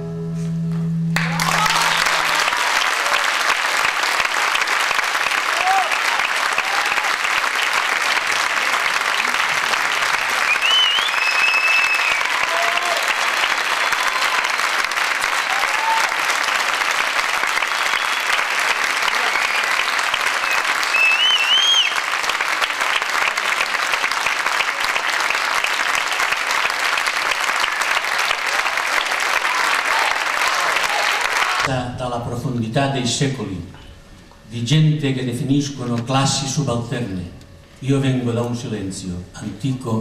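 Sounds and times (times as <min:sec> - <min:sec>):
high calls from audience: 0:01.2 - 0:03.5, 0:05.3 - 0:07.3, 0:10.6 - 0:16.5, 0:28.5 - 0:31.7
audience applauding: 0:01.2 - 0:31.7.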